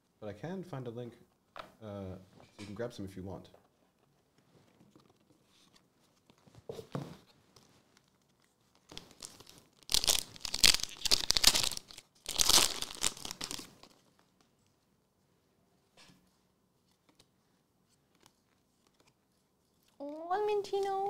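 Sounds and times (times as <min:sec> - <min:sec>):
foil pack tearing and crinkling: 0:08.9 - 0:13.8.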